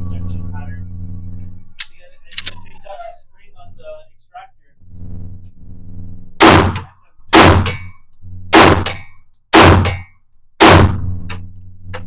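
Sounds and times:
handgun shots with echo: 8.6 - 11.0.

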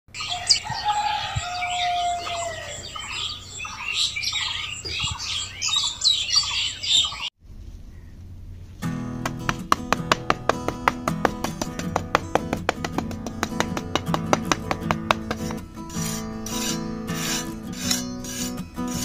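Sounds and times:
birds chirping and whistling: 0.1 - 8.2.

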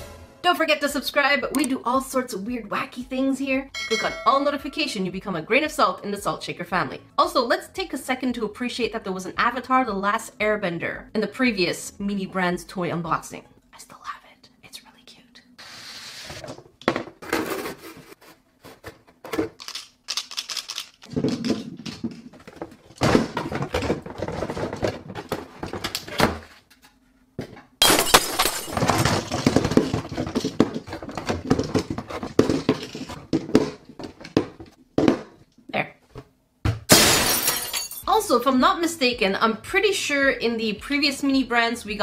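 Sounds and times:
plastic balls and box clattering: 16.8 - 26.7, 27.8 - 35.4.

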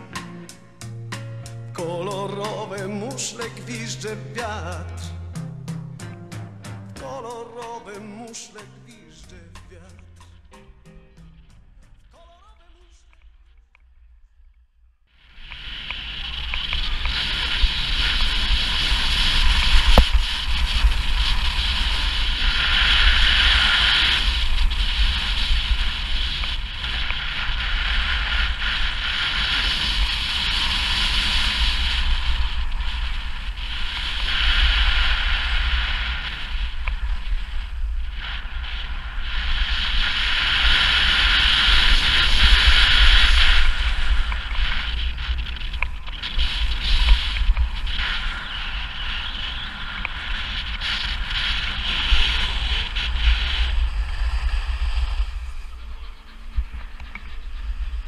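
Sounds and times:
skis scraping on packed snow: 15.3 - 58.0
wind buffeting microphone: 15.3 - 58.0.

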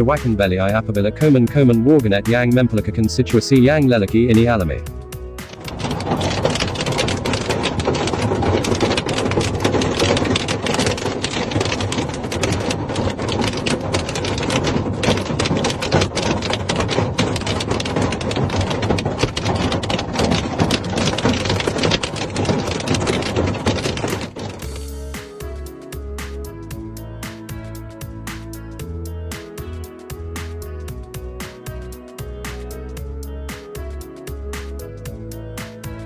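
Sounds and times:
hailstones clattering on roof: 5.4 - 25.5.

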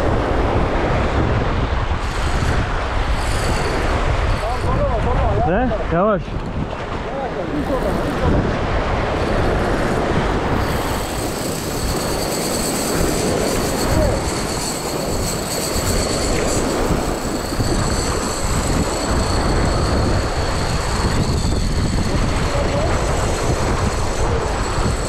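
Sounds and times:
surf washing over rocks: 0.0 - 25.0
wind on microphone: 0.0 - 25.0
fishing reel drag squealing: 2.0 - 4.8, 10.5 - 25.0.

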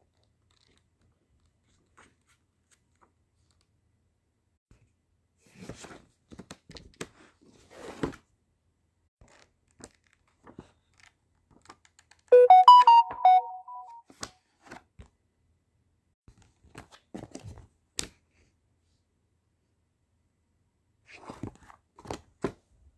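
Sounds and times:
book pages flipping: 0.0 - 3.7, 9.2 - 12.3, 14.1 - 14.9, 16.3 - 18.2, 21.1 - 22.6
piano-like notes: 12.4 - 14.0.

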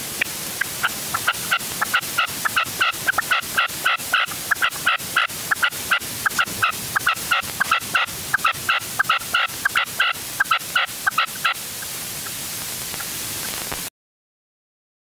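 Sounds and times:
partridge calling: 0.6 - 13.7.

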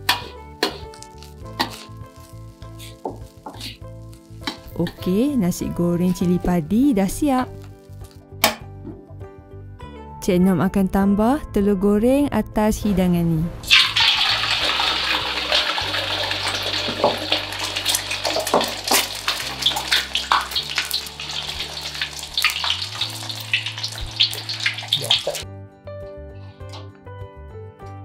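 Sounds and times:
egg sizzling in hot oil: 0.0 - 5.4, 13.7 - 25.4.

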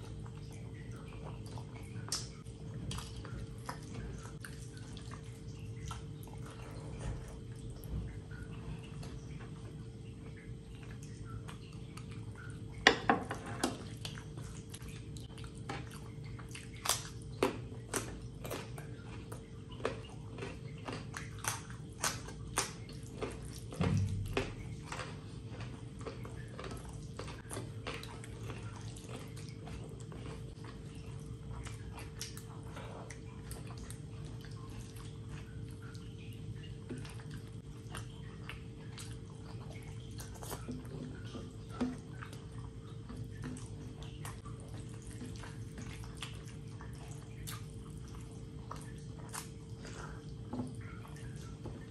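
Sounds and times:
mouth clicks and smacks chewing: 0.0 - 12.8, 13.9 - 51.9
faint steady hum: 0.0 - 51.9.

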